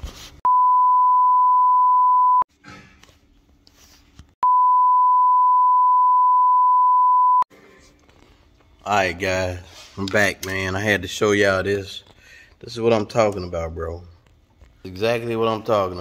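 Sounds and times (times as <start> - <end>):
electronic sine bleeps: 0.5 - 2.4, 4.4 - 7.5.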